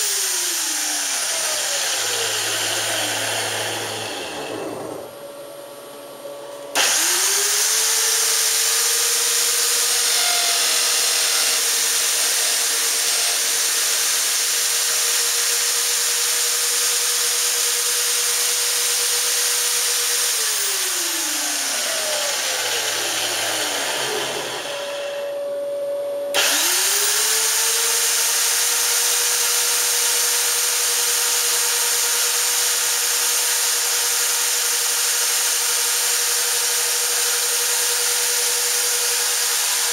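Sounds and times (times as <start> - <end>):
electric drills spinning: 0.0 - 5.4, 6.7 - 25.4, 26.3 - 39.9
short steady tone: 25.2 - 26.4.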